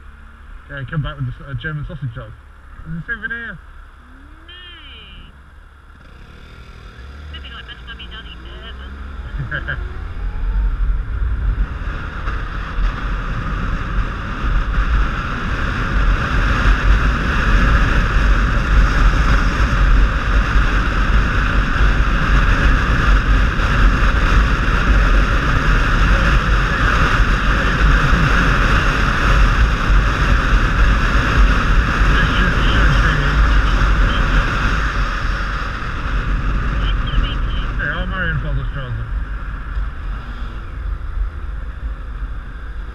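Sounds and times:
motorcycle engine: 0.0s - 42.9s
road noise: 0.0s - 42.9s
wind rushing over camera: 9.0s - 42.9s.

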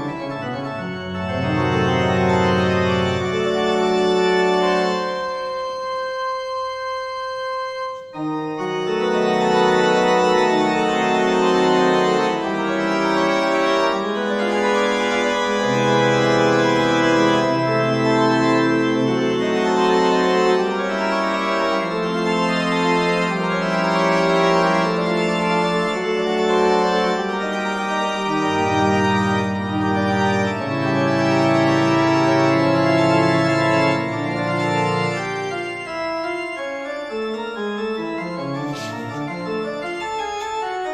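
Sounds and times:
organ music: 0.0s - 40.9s.

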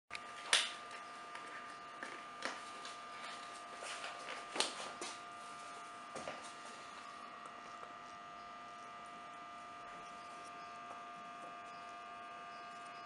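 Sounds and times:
high-pitched electrical hum: 0.1s - 13.0s.

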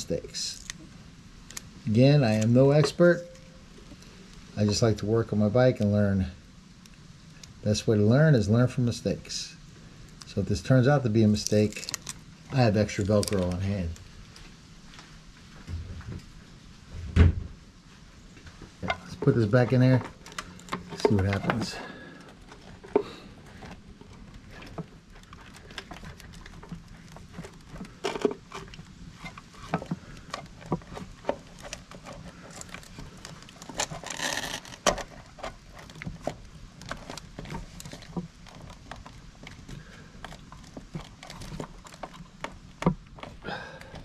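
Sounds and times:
faint steady hum: 0.0s - 44.0s
plastic and wires clicking: 11.3s - 14.1s, 18.8s - 44.0s
rustling scrape: 17.9s - 42.4s.

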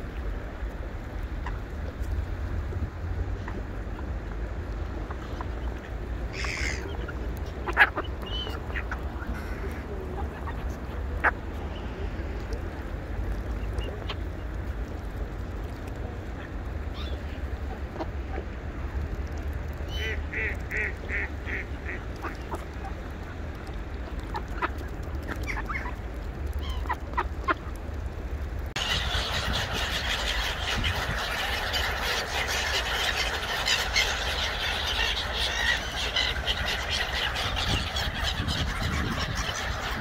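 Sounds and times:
steady low rumble: 0.0s - 40.0s
chatter of many birds: 4.9s - 15.0s, 19.8s - 27.7s, 28.8s - 40.0s
ducks and geese calling: 5.2s - 9.8s, 19.9s - 22.6s, 28.8s - 40.0s.

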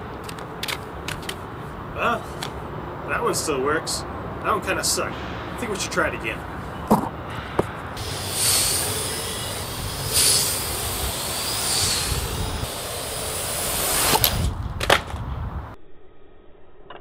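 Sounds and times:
drone rotors whining: 7.5s - 14.8s.

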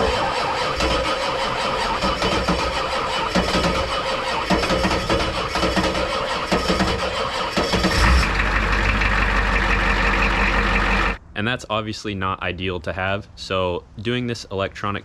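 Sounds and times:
diesel engine cranking and starting: 0.0s - 11.2s.

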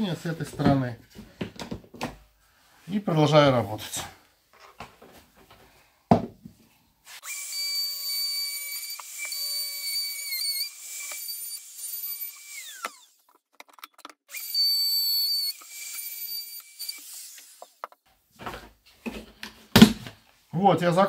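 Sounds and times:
thump: 6.1s - 6.4s, 19.7s - 20.2s
electric router motor whining: 7.2s - 13.2s, 14.3s - 17.8s.

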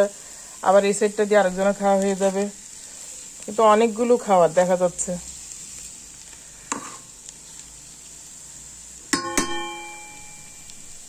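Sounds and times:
food sizzling in a pot: 0.0s - 11.0s
spatula striking metal pot: 9.1s - 10.4s.

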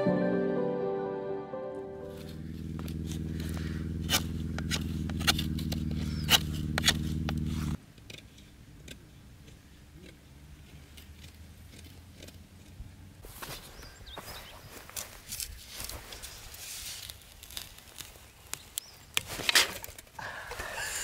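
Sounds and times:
background music: 0.0s - 2.3s
knife scraping wooden stick: 2.1s - 7.8s.

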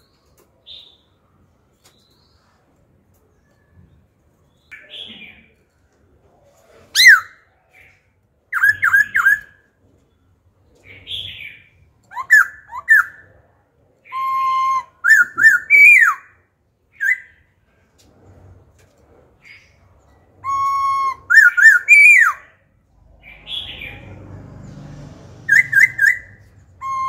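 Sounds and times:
bird singing whistled phrases: 14.0s - 16.4s, 20.4s - 22.4s, 25.5s - 27.0s.

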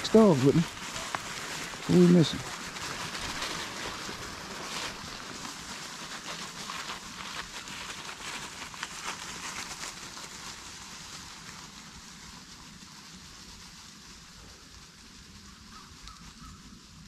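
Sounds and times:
footsteps on dry leaves: 0.0s - 17.0s.

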